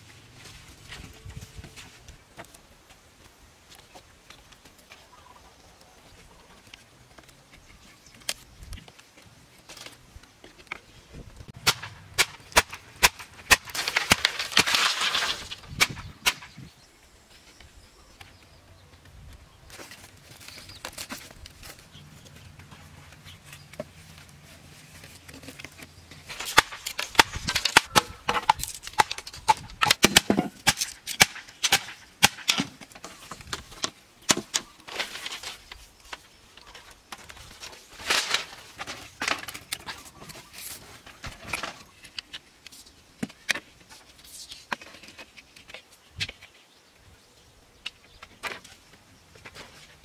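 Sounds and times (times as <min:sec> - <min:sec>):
wooden sticks knocking together: 0:25.2 - 0:35.5.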